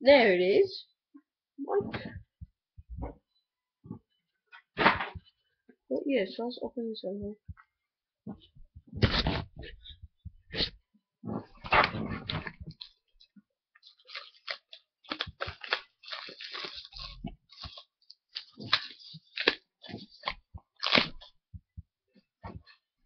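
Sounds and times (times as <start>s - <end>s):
cardboard box crinkling: 13.9s - 21.2s.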